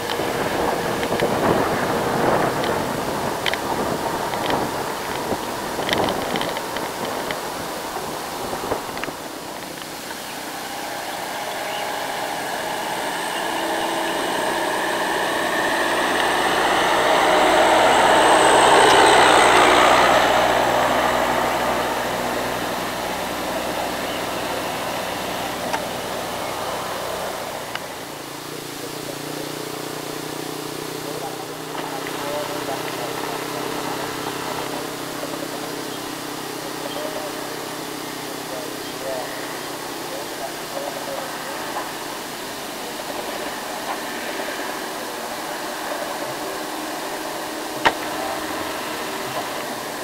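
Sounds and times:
bus engine passing by: 0.0 - 50.0.

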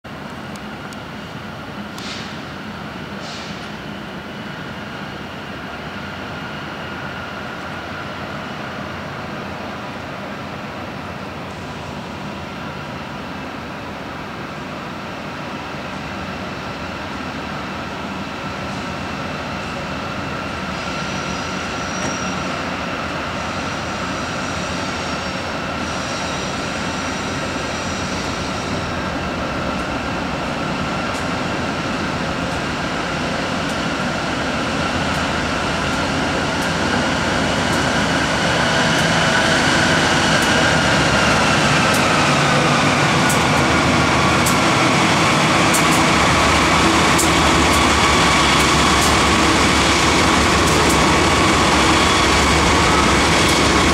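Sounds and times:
diesel locomotives pulling train: 0.0 - 53.9
steady high whine: 23.6 - 53.9
wheels clicking on rails: 45.4 - 53.9.

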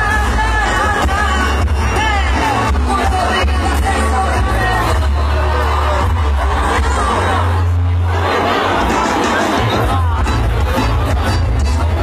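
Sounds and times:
person singing: 0.0 - 5.3
live band music: 0.0 - 12.0.

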